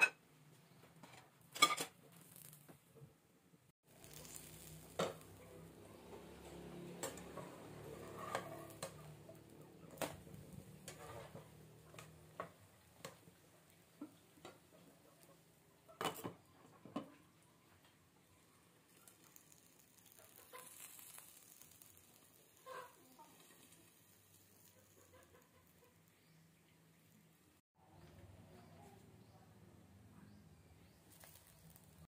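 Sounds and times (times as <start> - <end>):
faint frying in a pan: 3.8 - 27.6, 30.9 - 32.0.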